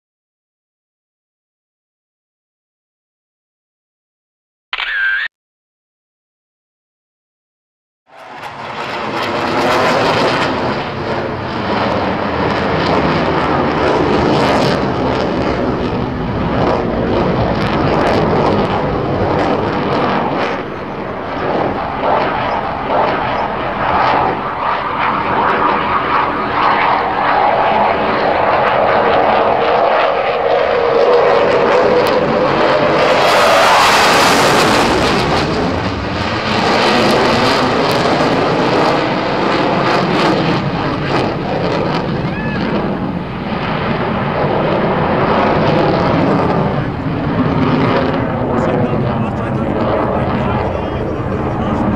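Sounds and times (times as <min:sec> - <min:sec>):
fighter jet engines roaring: 0:08.1 - 0:51.9.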